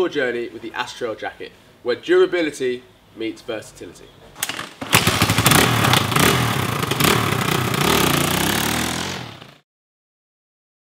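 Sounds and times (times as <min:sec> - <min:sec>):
motorcycle engine revving: 0:04.5 - 0:09.6.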